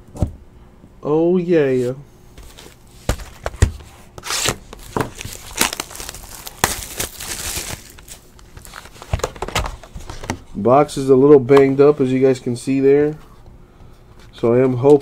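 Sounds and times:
box cutter slitting plastic wrap: 0:04.2 - 0:08.7
plastic wrap tearing and crinkling: 0:04.2 - 0:09.8.

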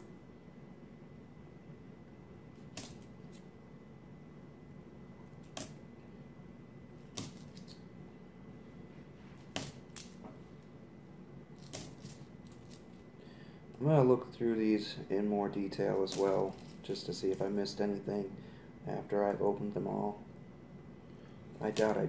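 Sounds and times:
coins clinking: 0:02.6 - 0:03.1, 0:11.6 - 0:13.0, 0:16.0 - 0:17.6, 0:21.6 - 0:22.0.

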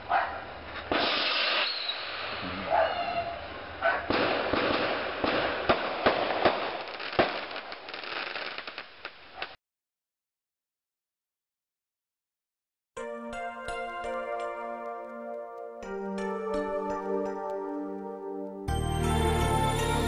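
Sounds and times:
firework bangs: 0:00.8 - 0:02.4, 0:04.0 - 0:09.6
firework crackling: 0:00.8 - 0:02.4, 0:04.1 - 0:09.6.

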